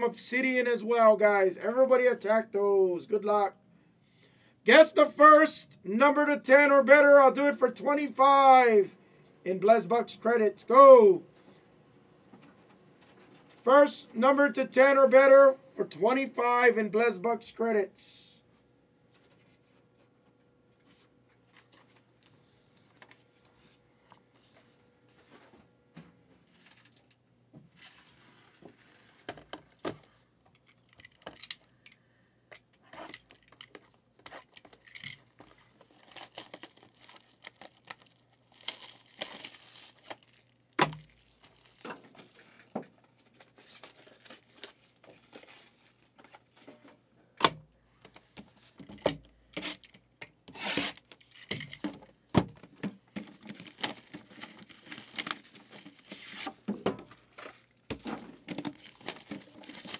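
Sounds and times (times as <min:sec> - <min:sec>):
shrink-wrap tearing and crinkling: 0:34.2 - 0:46.6, 0:50.5 - 0:51.5, 0:53.2 - 0:59.9.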